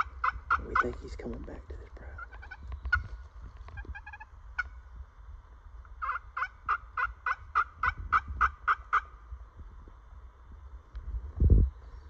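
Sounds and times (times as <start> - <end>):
turkey call yelps: 0.0 - 0.9, 2.2 - 4.8, 6.0 - 9.2.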